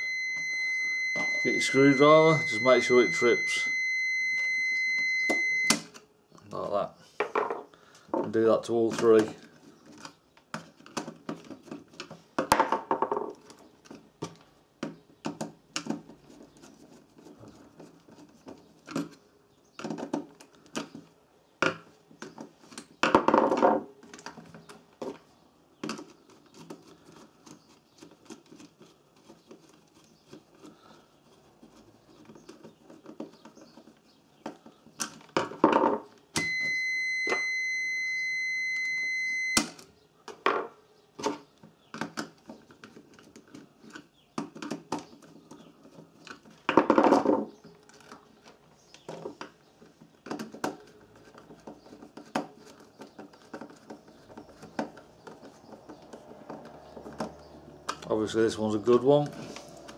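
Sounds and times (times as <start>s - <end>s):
multimeter continuity beep: 0.0s - 5.8s, 36.4s - 39.7s.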